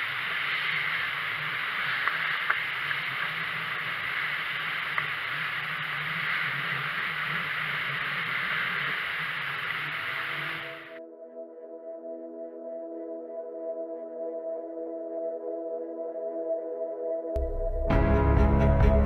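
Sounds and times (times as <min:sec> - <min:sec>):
water rushing along hull: 0:00.0 - 0:11.0.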